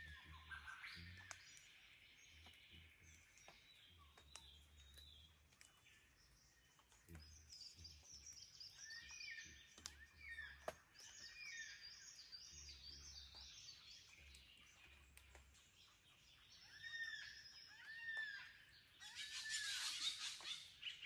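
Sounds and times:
small birds twittering: 0.0s - 21.0s.

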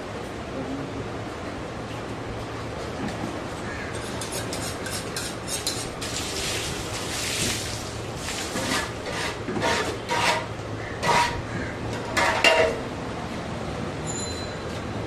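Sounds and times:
water splashing on concrete: 6.0s - 9.0s.

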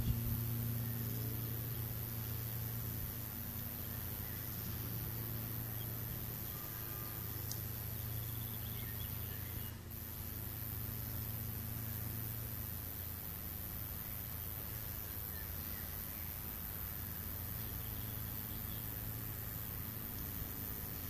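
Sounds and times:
low hum and hiss: 0.0s - 21.0s
distant bird calls: 3.7s - 11.3s.

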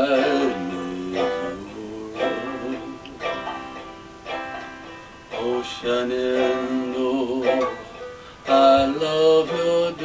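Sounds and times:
banjo plucked notes: 0.0s - 10.0s.

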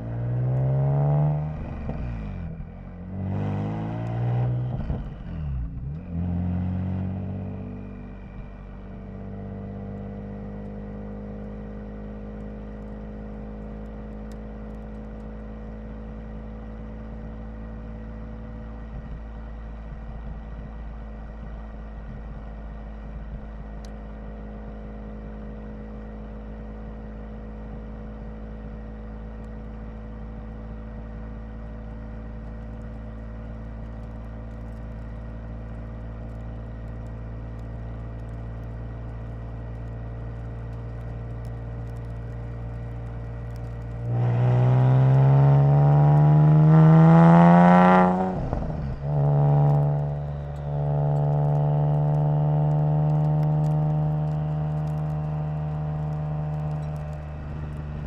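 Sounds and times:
car engine running: 0.0s - 58.0s.

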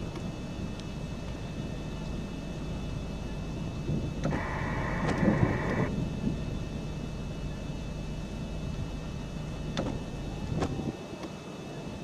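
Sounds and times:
steady low rumble: 0.0s - 11.2s
sharp clicks: 4.2s - 5.9s.

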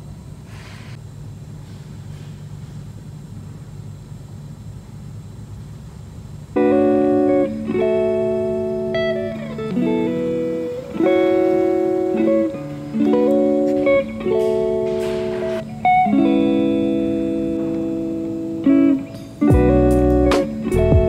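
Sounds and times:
guitar chords music: 6.5s - 21.0s.

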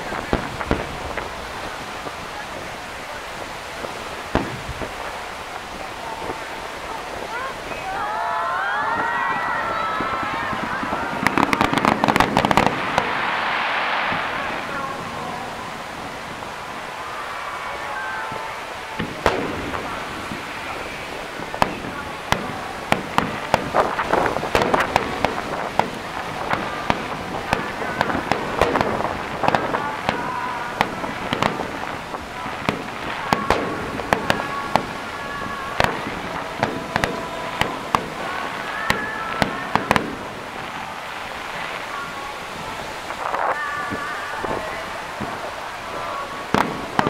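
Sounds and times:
firework shells bursting: 9.6s - 17.7s, 18.4s - 41.5s, 42.9s - 47.0s.

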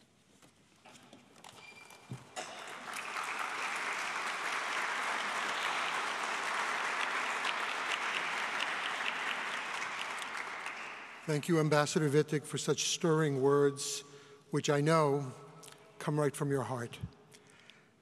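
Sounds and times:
audience applauding: 2.4s - 11.3s.

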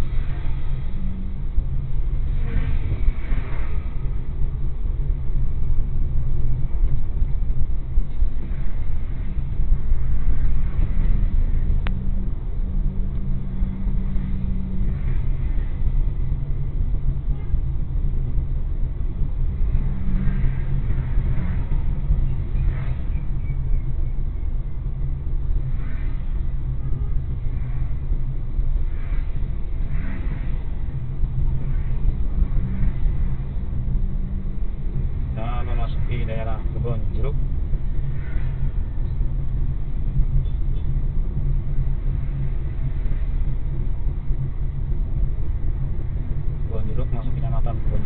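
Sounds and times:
car engine and tyres rumbling: 0.0s - 48.0s.

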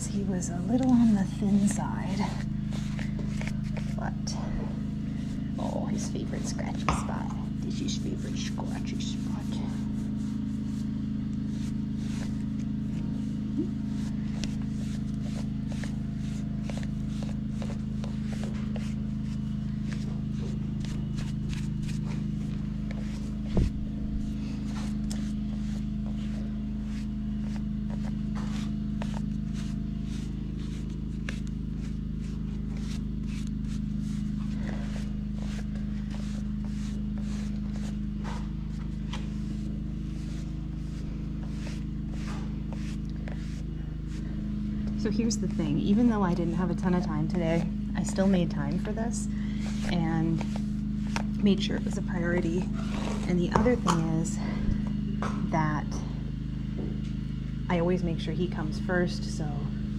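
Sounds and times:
low hum: 0.0s - 59.9s
brushing and scratching strokes: 1.5s - 51.9s.

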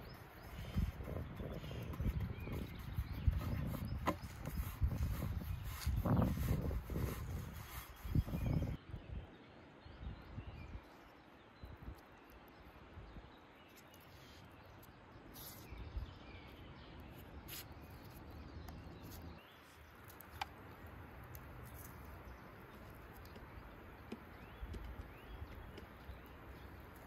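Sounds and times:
faint bird chirps: 0.0s - 20.5s.

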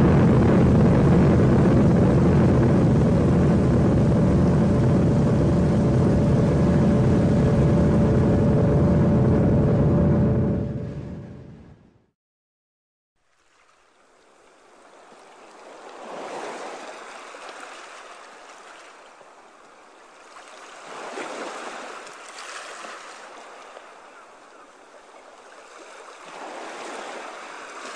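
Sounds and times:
rushing river water: 13.2s - 27.9s.

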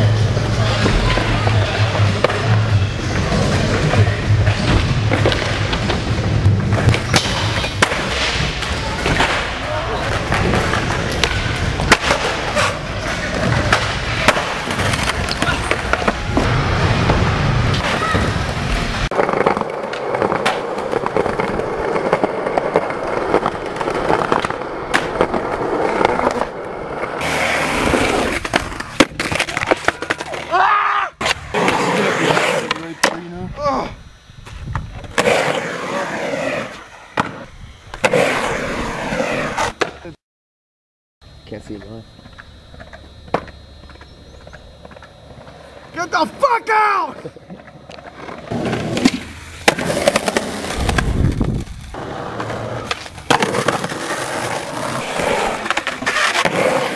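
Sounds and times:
skateboard wheels rolling on concrete: 0.0s - 40.2s, 41.2s - 56.9s
skateboard clacks: 0.6s - 18.2s, 19.1s - 30.6s, 41.8s - 56.9s.

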